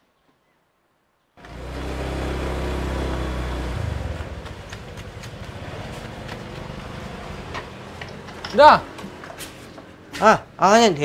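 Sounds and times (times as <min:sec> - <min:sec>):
vehicle engine running: 0:01.4 - 0:08.4.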